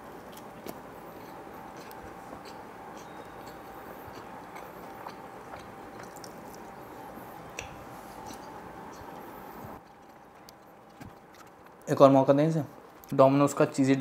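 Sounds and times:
person chewing: 0.0 - 11.9
wet mouth clicks: 0.3 - 6.7.

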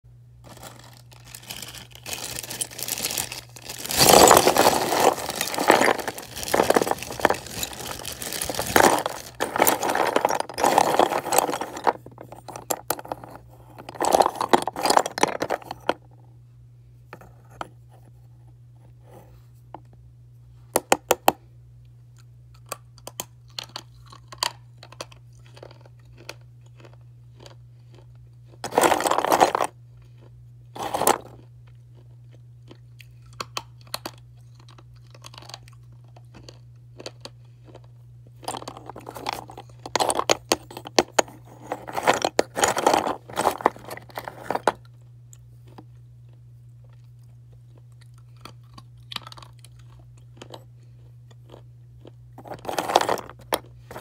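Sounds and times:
faint low hum: 0.1 - 54.0
slate pencils crunching and scraping: 0.4 - 16.0, 28.6 - 32.0, 38.4 - 44.9, 51.5 - 54.0.

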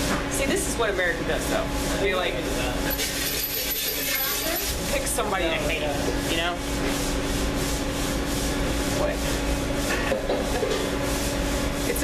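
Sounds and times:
steady hum: 0.0 - 12.0
scratchy rubbing noise: 5.9 - 10.0.

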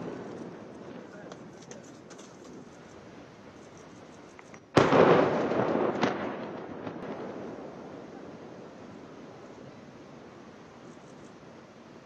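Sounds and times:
sharp crack: 4.5 - 7.8
loud explosion rumbling: 4.8 - 9.4.

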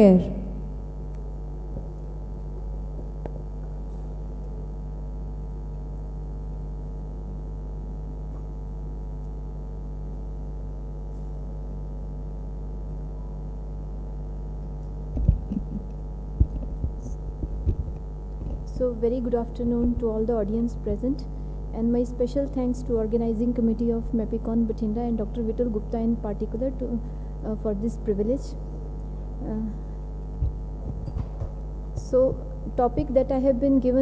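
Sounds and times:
electrical mains hum: 0.0 - 34.0
short low thumps: 15.1 - 15.8, 16.4 - 18.8, 30.4 - 31.4.

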